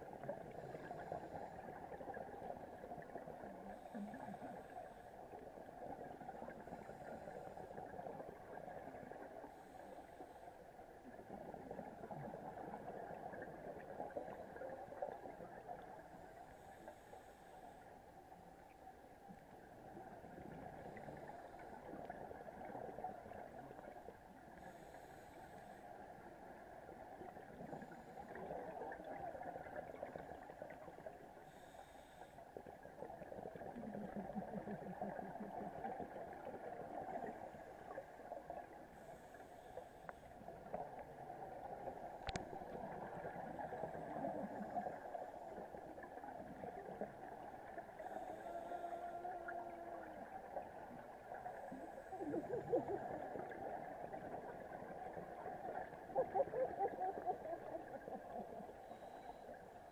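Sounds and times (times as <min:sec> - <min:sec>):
underwater water noise: 0:00.0 - 0:59.9
scuba regulator breaths: 0:31.4 - 0:32.5, 0:48.0 - 0:49.5.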